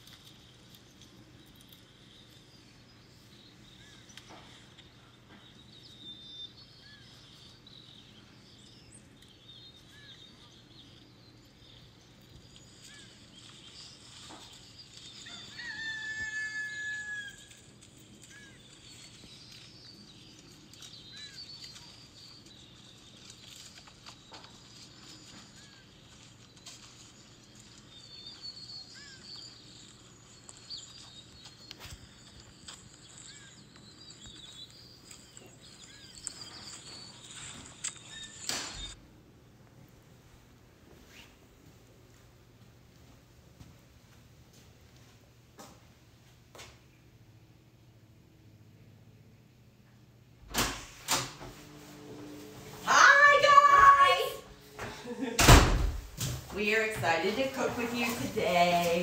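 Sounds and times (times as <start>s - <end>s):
small birds chirping: 0.0s - 39.0s, 56.6s - 59.0s
rooster crowing: 15.2s - 17.7s.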